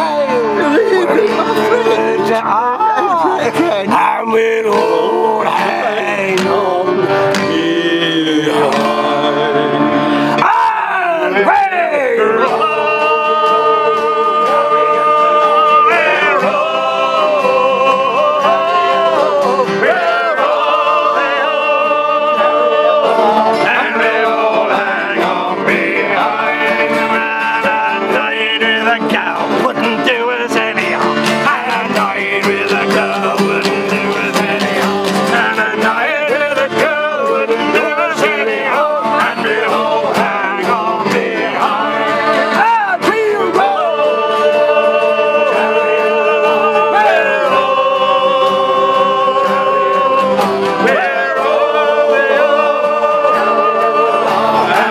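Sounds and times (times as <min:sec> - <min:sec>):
accordion: 0:00.0 - 0:03.9, 0:04.7 - 0:10.4, 0:12.2 - 0:54.9
acoustic guitars strummed: 0:00.0 - 0:54.9
men singing in unison: 0:00.0 - 0:54.9.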